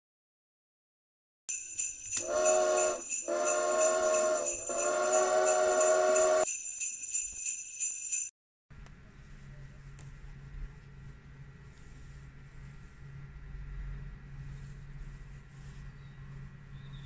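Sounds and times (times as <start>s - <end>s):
sleigh bells jingling: 1.5s - 8.3s
chime train whistle blasts: 2.2s - 6.5s.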